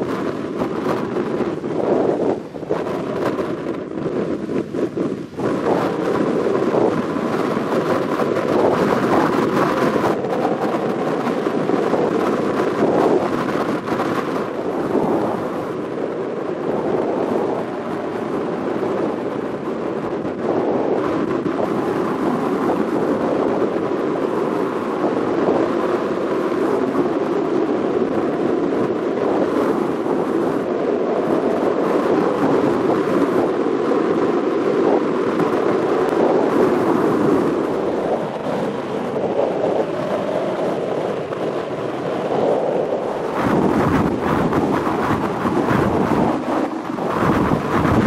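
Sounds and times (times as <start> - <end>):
boat engine drone: 0.0 - 48.0
rushing water: 0.0 - 48.0
wind buffeting microphone: 0.0 - 48.0.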